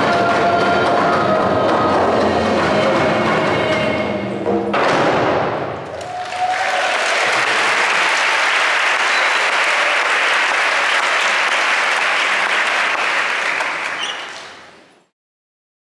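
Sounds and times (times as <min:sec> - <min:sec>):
audience applauding: 0:05.8 - 0:14.8.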